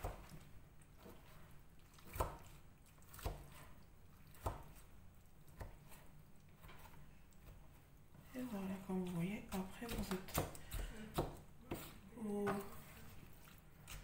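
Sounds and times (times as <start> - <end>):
knife chopping on cutting mat: 2.0 - 3.7, 4.3 - 4.9, 5.5 - 7.7, 9.8 - 12.0.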